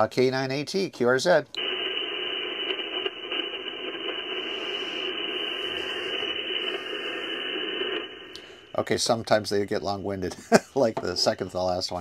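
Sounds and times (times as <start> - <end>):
radio receiver hiss and static: 1.6 - 10.3.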